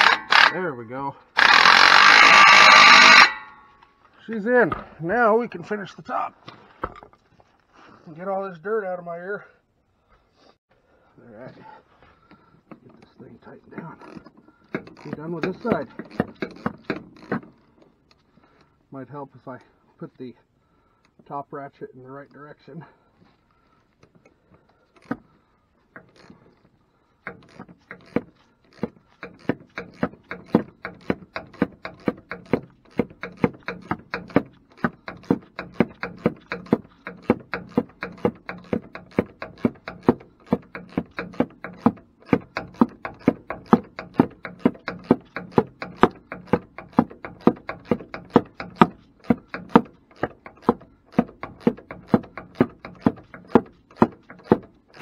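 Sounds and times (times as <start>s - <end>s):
hand ratchet clicking: 0.0s - 0.6s, 1.4s - 3.6s, 27.2s - 55.0s.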